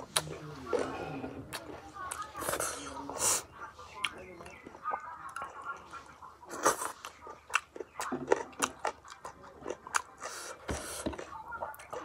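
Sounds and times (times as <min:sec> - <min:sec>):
person chewing and smacking: 0:00.0 - 0:02.7, 0:06.5 - 0:12.0
fingers squishing food: 0:06.5 - 0:12.0.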